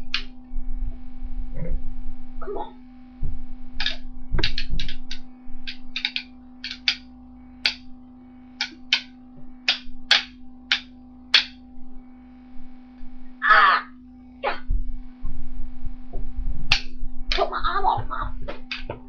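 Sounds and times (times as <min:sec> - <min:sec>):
steady low hum: 0:00.0 - 0:19.0
sticks clacking together: 0:03.8 - 0:07.0, 0:07.6 - 0:07.8, 0:08.6 - 0:09.1, 0:09.7 - 0:11.6.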